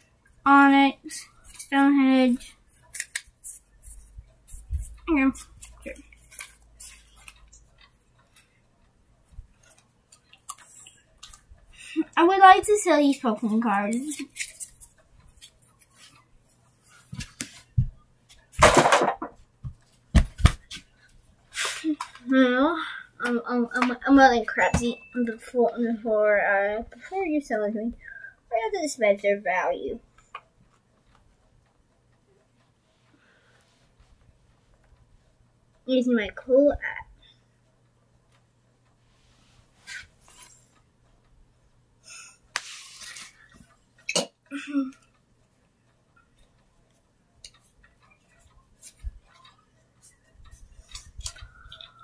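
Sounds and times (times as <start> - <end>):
faint tablet handling rustle: 42.6 - 43.7.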